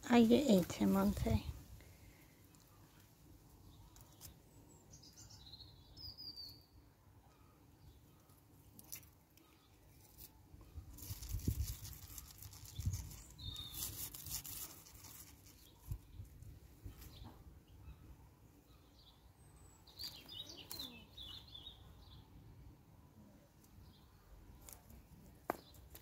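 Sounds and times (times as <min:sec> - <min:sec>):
faint garden ambience: 0:00.0 - 0:26.0
rustling leaves with soft bumps: 0:09.9 - 0:17.4
short bird chirps: 0:12.0 - 0:14.6.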